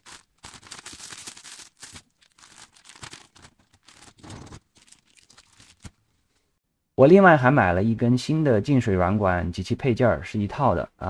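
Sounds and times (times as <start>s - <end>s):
plastic bag crinkling: 0.0s - 6.2s.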